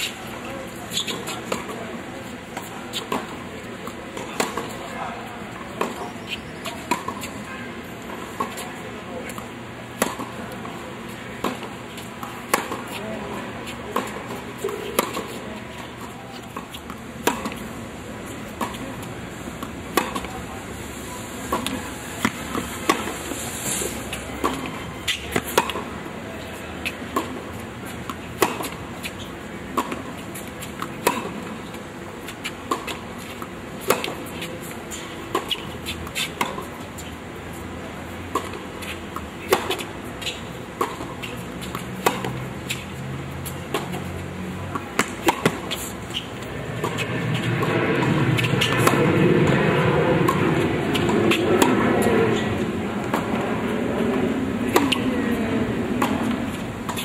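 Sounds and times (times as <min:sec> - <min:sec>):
tennis racket strikes and bounces: 0:11.4 - 0:13.2, 0:16.2 - 0:17.7, 0:18.4 - 0:20.4, 0:21.4 - 0:25.9, 0:28.0 - 0:31.6, 0:38.3 - 0:44.1, 0:44.7 - 0:49.6, 0:54.7 - 0:55.3, 0:56.0 - 0:57.0.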